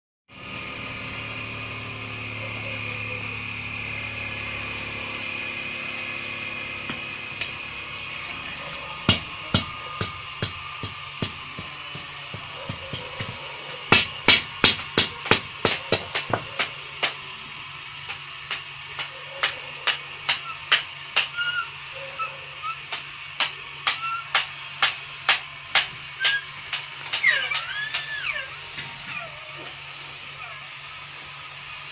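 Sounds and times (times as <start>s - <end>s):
hot metal sizzling in wood: 0.4s - 31.9s
hammer blows on metal: 22.6s - 29.2s.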